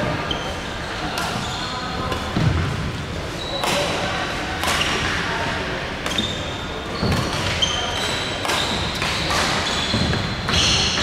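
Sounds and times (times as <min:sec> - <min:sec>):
racket hitting shuttlecock: 0:03.6 - 0:05.2, 0:07.0 - 0:11.0
shoes squeaking on wooden floor: 0:09.6 - 0:11.0.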